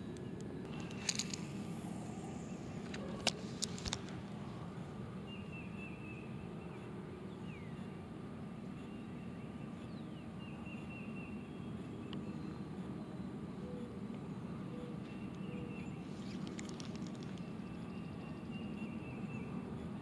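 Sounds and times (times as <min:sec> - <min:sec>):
faint high bird calls: 0:08.7 - 0:20.0.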